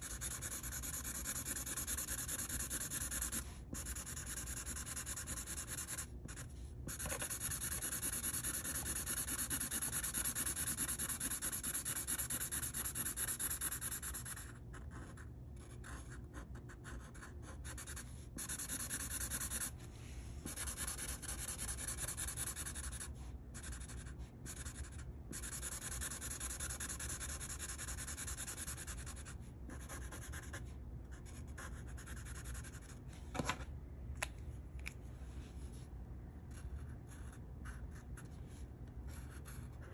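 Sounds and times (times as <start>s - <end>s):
marker scratching on paper: 0.0s - 19.7s, 20.4s - 33.0s, 36.5s - 39.9s.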